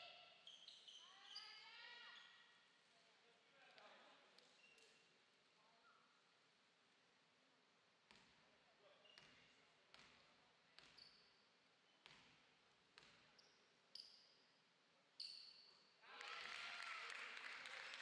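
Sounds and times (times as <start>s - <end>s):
shoe squeaks: 0.4s - 2.5s, 4.4s - 5.1s, 10.8s - 12.0s, 13.2s - 14.4s, 15.2s - 15.9s.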